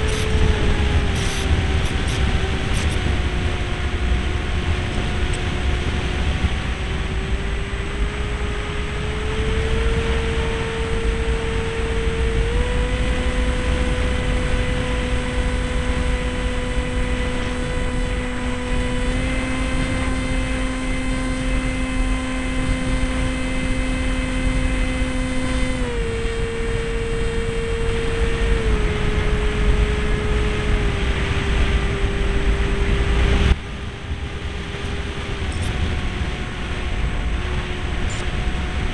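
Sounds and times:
model plane motor humming: 0.0 - 38.9
wind rumble on microphone: 0.0 - 38.9.

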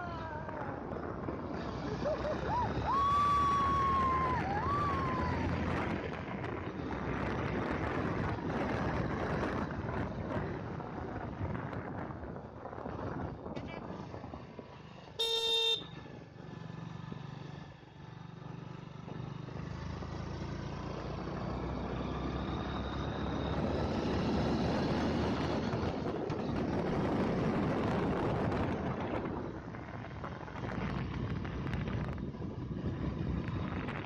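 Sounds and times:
wind noise on microphone: 0.0 - 15.7, 23.2 - 34.0
vehicle horn toot: 15.2 - 16.0.

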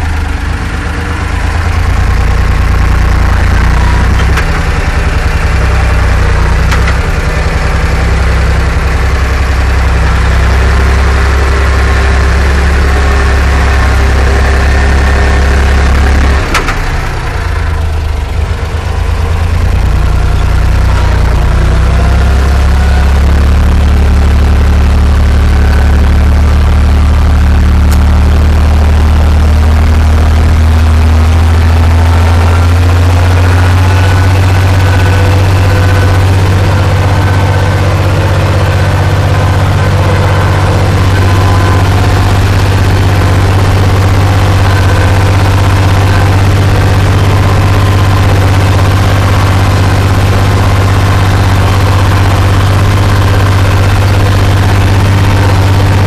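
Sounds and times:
tractor engine running under load: 0.0 - 56.0.

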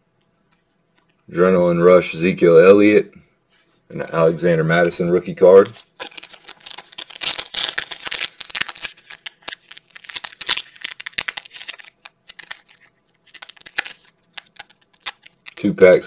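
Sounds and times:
foil wrapper crinkling: 5.6 - 16.0.

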